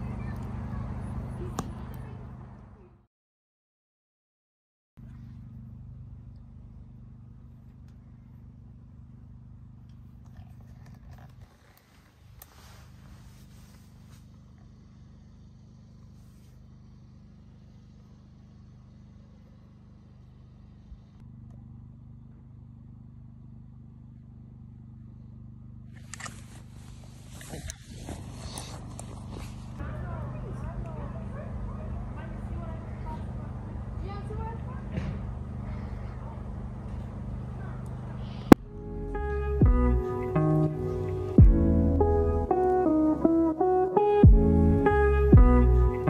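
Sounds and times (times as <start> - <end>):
generator humming: 5.0 - 46.0
nylon tent and sleeping bag rustling: 10.6 - 14.5, 26.0 - 29.8.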